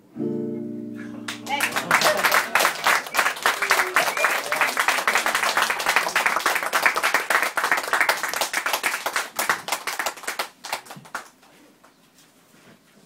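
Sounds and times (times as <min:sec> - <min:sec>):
audience clapping: 0:01.2 - 0:11.5.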